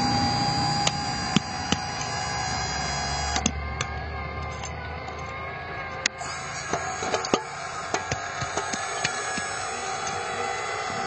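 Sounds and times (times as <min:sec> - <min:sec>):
hydraulic pump whining: 0:00.0 - 0:11.0
sharp clicks: 0:03.2 - 0:10.2.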